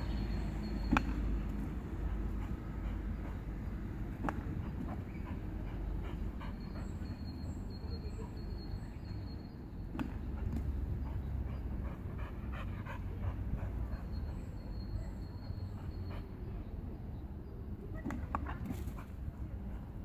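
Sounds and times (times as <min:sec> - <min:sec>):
dog panting: 0:01.5 - 0:09.2, 0:10.2 - 0:16.8.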